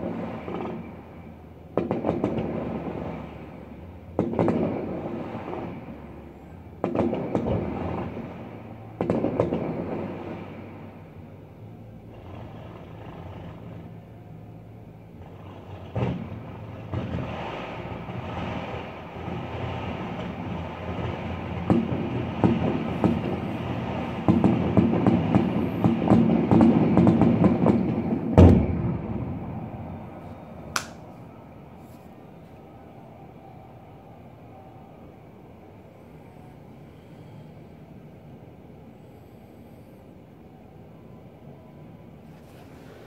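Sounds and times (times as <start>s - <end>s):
distant fireworks bangs and crackling: 0.0s - 31.8s
big firework bang: 28.3s - 29.6s
sharp firework pop: 30.8s - 31.0s.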